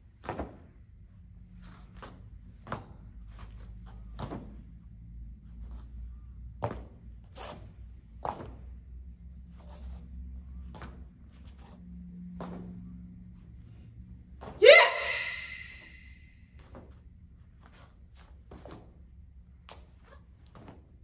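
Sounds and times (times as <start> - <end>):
uniform swishes and snaps: 0.1 - 0.8, 1.5 - 14.6, 16.6 - 21.0
steps on foam mats: 1.5 - 13.8.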